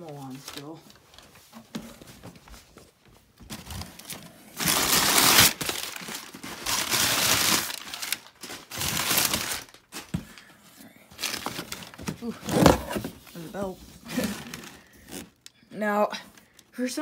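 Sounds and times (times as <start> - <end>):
packing paper crinkling: 0.0 - 1.5, 3.4 - 10.2.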